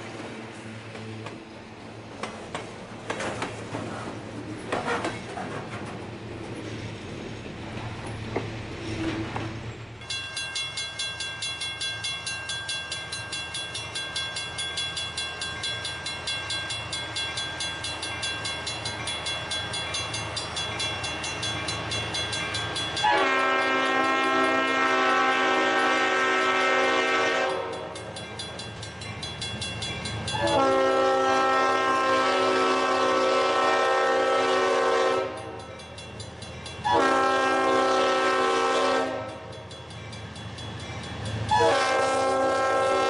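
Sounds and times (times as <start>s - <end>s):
locomotive bell ringing: 10.0s - 31.8s, 35.0s - 42.3s
locomotive air horn: 23.0s - 27.9s, 30.3s - 35.5s, 36.8s - 39.4s, 41.5s - 43.0s.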